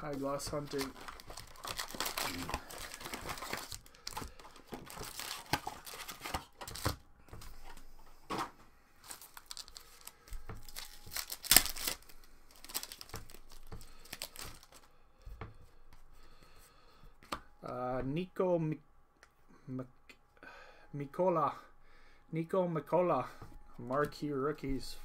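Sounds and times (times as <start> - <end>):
foil wrappers tearing and crinkling: 0.0 - 7.0, 9.0 - 14.9.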